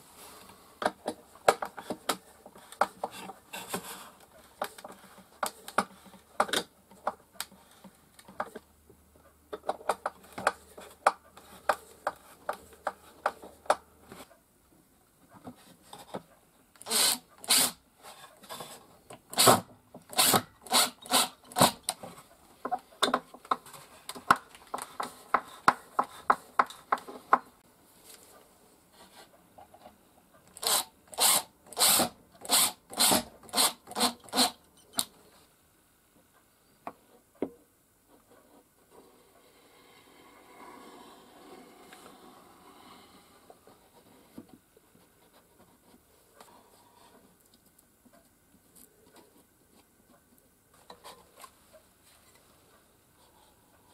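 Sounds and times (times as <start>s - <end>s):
impact driver driving screws: 16.8s - 17.8s, 19.4s - 21.8s, 30.6s - 34.6s.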